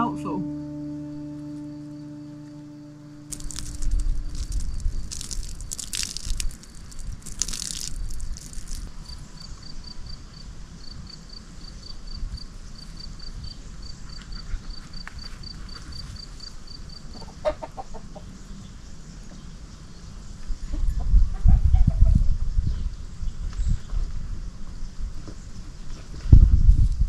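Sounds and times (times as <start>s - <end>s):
wind rumble on microphone: 3.4s - 16.9s, 18.4s - 27.0s
chicken clucking: 17.2s - 18.2s.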